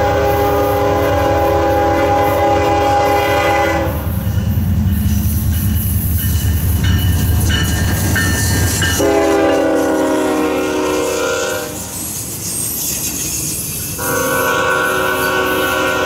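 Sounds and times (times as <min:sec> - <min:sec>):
locomotive air horn chord: 0:00.0 - 0:04.1, 0:09.0 - 0:11.9, 0:14.0 - 0:16.0
diesel locomotive engine rumble: 0:00.0 - 0:16.0
train wheels on rail: 0:00.0 - 0:16.0.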